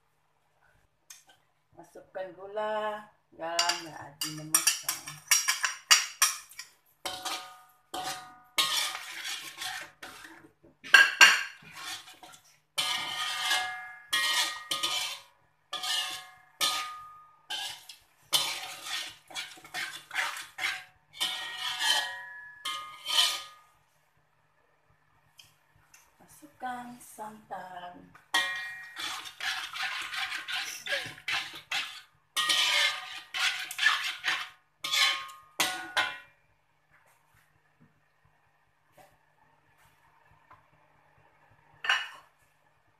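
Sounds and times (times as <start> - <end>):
metal spatula scraping a wok: 3.6 - 23.8, 28.3 - 36.3, 41.8 - 42.3.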